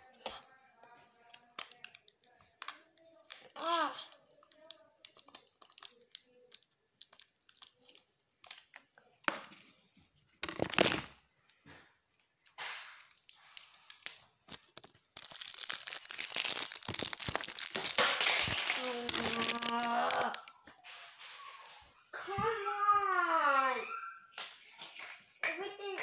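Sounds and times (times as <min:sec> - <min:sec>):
plastic packaging crinkling: 0:01.2 - 0:03.5, 0:04.1 - 0:11.2, 0:12.8 - 0:20.7
plastic tearing: 0:01.2 - 0:11.2, 0:12.4 - 0:20.7.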